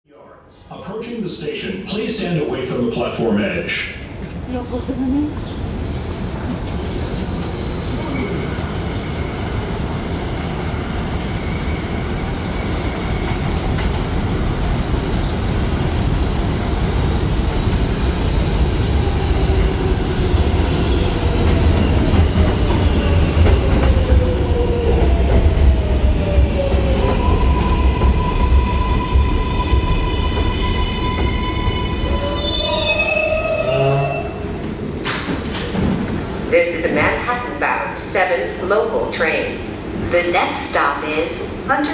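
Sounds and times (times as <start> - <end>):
train rumble and clickety-clack: 1.5 - 41.9
steady train whine: 3.9 - 41.9
train wheels squealing: 6.8 - 9.1, 27.3 - 35.2.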